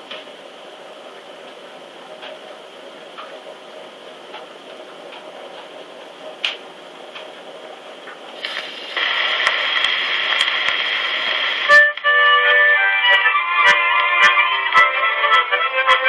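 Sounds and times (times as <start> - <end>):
record surface hiss and crackles: 0.0 - 16.0
recorded music on phonograph: 0.0 - 16.0.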